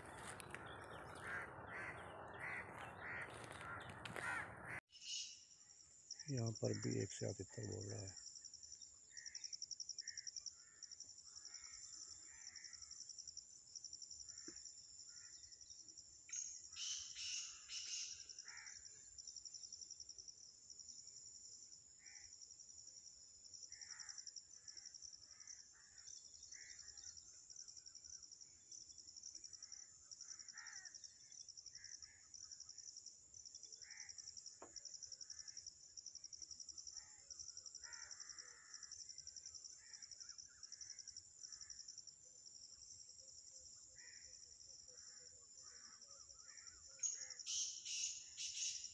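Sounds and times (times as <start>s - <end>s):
soft bird calls: 0.0s - 5.5s.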